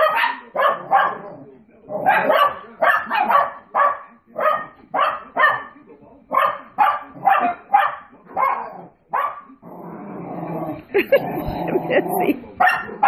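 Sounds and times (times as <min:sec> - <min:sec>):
small dogs barking: 0:00.0 - 0:09.6, 0:11.0 - 0:13.0.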